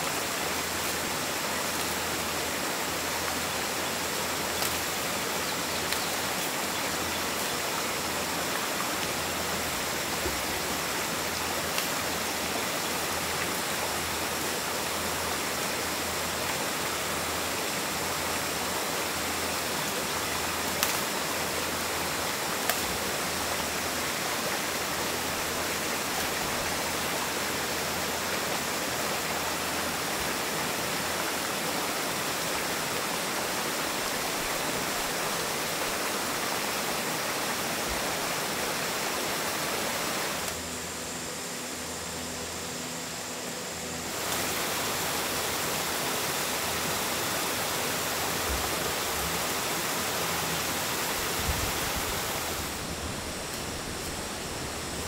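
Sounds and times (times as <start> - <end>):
rushing hiss of background noise: 0.0 - 55.0
sharp snaps: 20.7 - 21.1.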